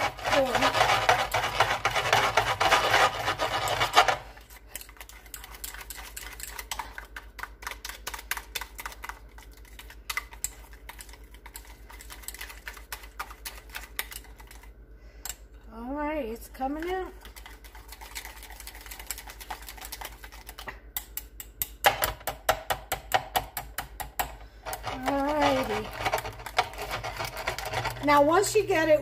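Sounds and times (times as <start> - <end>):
whisk scraping metal bowl: 0.0 - 14.7, 16.7 - 20.7, 24.7 - 29.0
low steady hum: 0.0 - 29.0.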